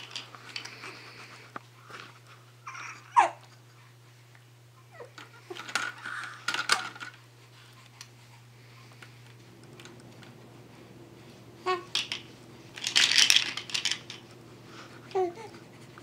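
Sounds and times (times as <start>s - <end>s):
baby cooing: 2.6s - 3.4s.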